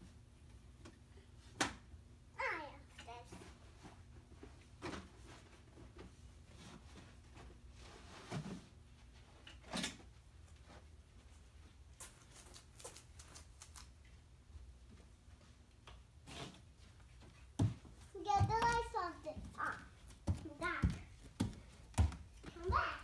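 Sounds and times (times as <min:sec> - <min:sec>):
soft knocks and thumps: 0:17.5 - 0:23.0.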